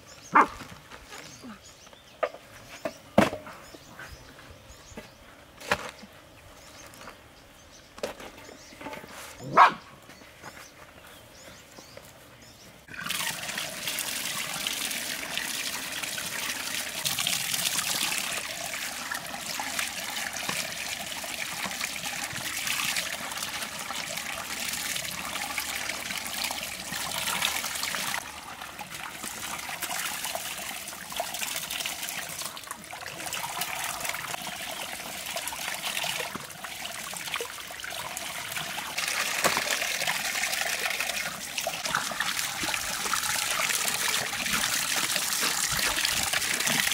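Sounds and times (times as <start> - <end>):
water pouring into a basin: 12.9 - 46.9
hands washing tripe: 38.1 - 46.9.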